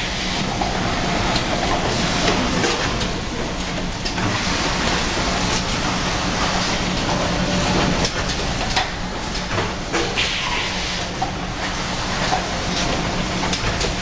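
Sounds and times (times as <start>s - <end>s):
conveyor machine noise: 0.0s - 14.0s.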